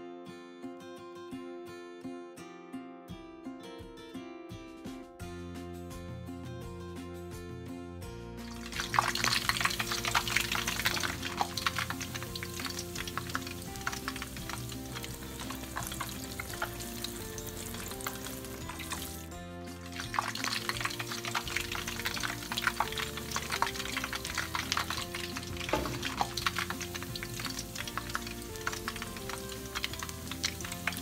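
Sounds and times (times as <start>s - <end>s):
background music sustained notes: 5.0s - 31.0s
oil crackling and sizzling: 8.4s - 31.0s.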